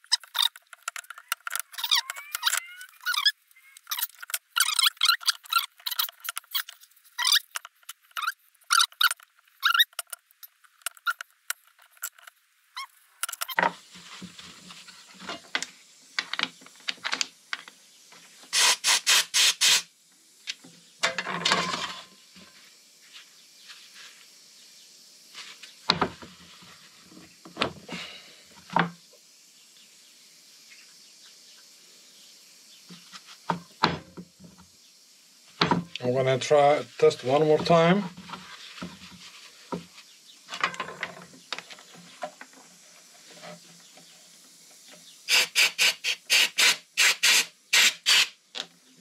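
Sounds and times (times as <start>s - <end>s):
clicks and knocks of parts: 0.0s - 12.4s, 13.2s - 13.7s
loud hissing air blasts: 18.5s - 19.9s, 45.3s - 48.4s.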